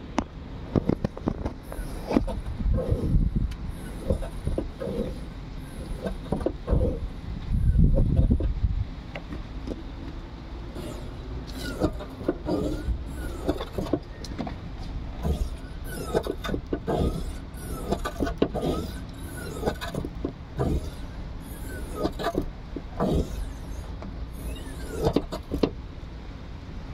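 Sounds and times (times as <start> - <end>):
gas strut scraping and squealing: 0.7 - 8.6, 9.2 - 25.8.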